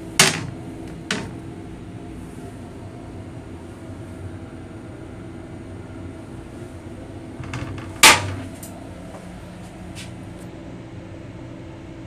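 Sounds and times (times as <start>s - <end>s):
ventilation hum: 0.0s - 12.0s
toilet seat clacking on bowl: 0.2s - 1.3s, 7.4s - 8.5s.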